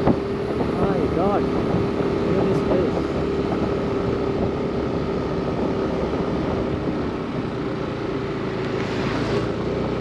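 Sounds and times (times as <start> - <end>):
scooter engine running: 0.0 - 10.0
wind and road noise: 0.0 - 10.0.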